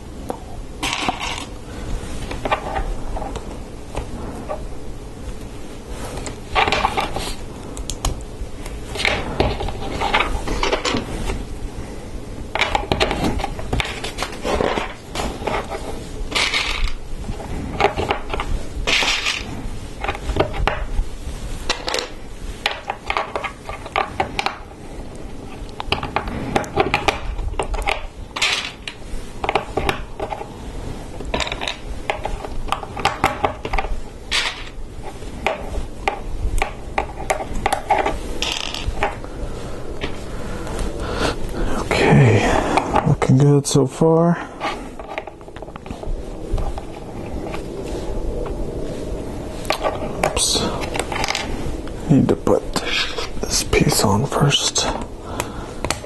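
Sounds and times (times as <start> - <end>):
plastic pieces clicking and clattering: 16.3 - 17.0, 21.7 - 24.6, 25.8 - 30.5, 31.3 - 34.8.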